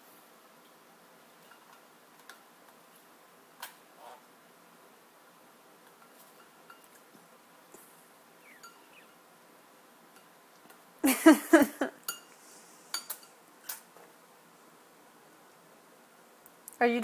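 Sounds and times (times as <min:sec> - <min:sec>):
clinks and drips against bowl: 0:05.9 - 0:07.0, 0:08.6 - 0:09.0, 0:12.0 - 0:13.8.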